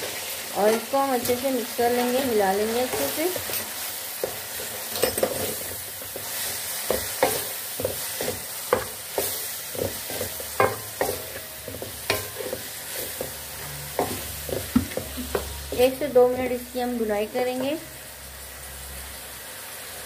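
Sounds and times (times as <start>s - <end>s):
meat sizzling in hot oil: 0.0s - 20.0s
spatula scraping a pan: 2.0s - 16.0s.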